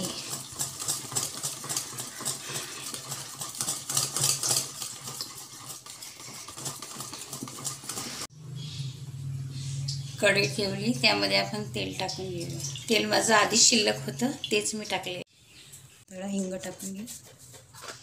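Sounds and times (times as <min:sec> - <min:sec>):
whisk scraping metal bowl: 0:00.0 - 0:08.3, 0:16.4 - 0:18.0.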